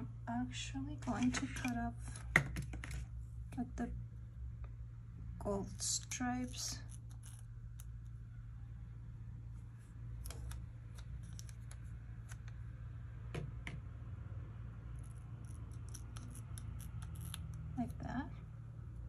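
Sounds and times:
steady low hum: 0.0s - 19.0s
scissors snipping sticker sheet: 10.2s - 12.6s.

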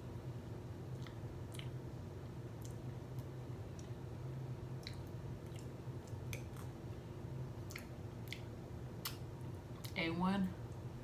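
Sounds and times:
steady low hum: 0.0s - 11.0s
wet mouth smacks eating: 1.0s - 1.8s, 4.8s - 6.8s, 7.6s - 9.2s.

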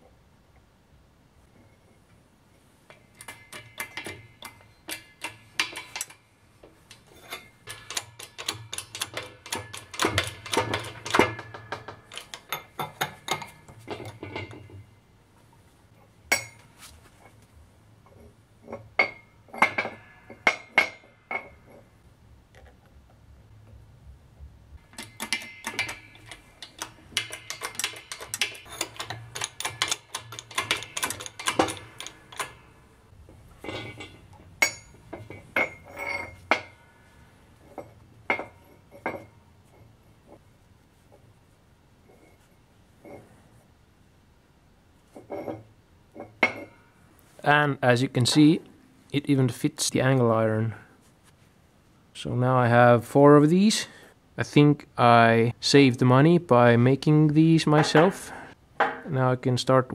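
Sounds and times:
rapid metallic clicking and clinking: 6.9s - 14.7s, 24.8s - 32.8s.

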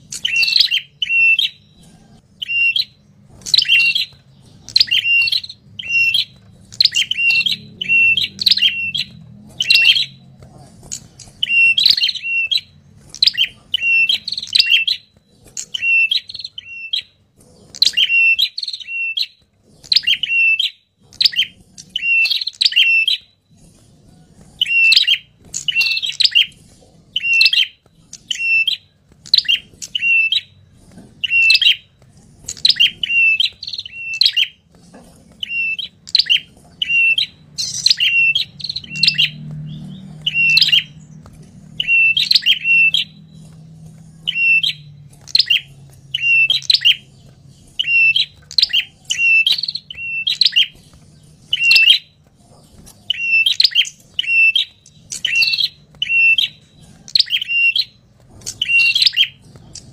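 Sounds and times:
bird chip notes: 0.0s - 23.4s, 35.4s - 59.9s.

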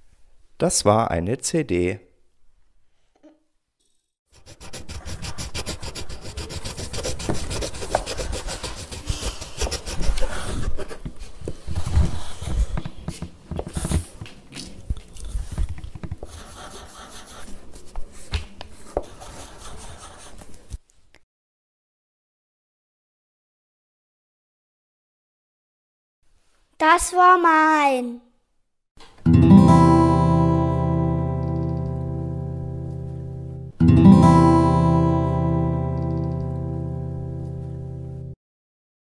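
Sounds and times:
rapid scratching on hard surface: 4.3s - 14.2s, 15.1s - 20.5s.

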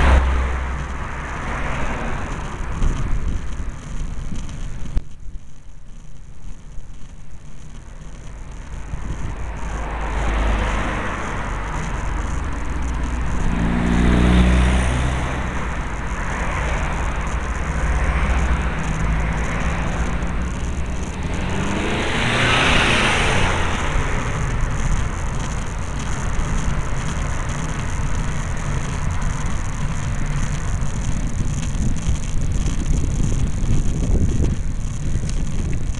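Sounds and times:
cars driving past: 0.0s - 4.6s, 8.0s - 33.4s
wind rumble on microphone: 0.0s - 35.9s.

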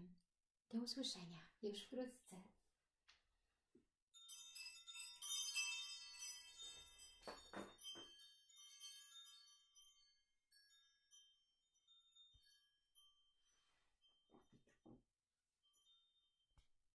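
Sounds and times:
metal chimes ringing: 4.2s - 14.2s.

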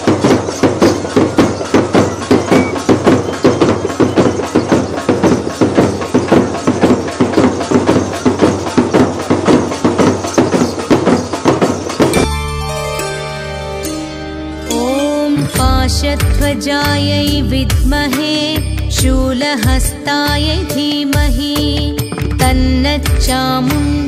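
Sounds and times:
drums played fast: 0.0s - 12.4s
recorded music with held tones: 0.0s - 24.0s.

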